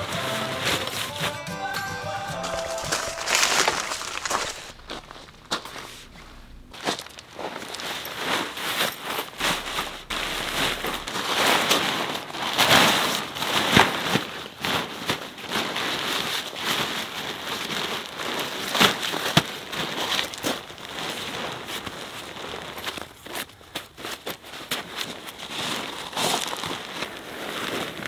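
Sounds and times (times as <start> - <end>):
tent fabric rustling and crinkling: 0.0 - 1.5, 2.1 - 28.0
gravel crunching: 2.1 - 28.0.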